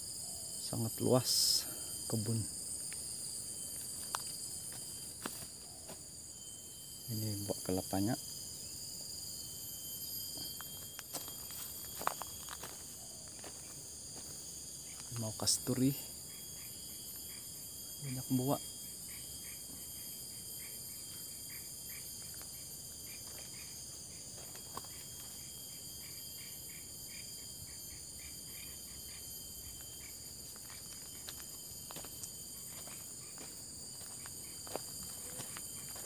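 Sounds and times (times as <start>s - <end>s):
high-pitched insect buzz: 0.0s - 36.0s
insects chirping: 0.0s - 36.0s.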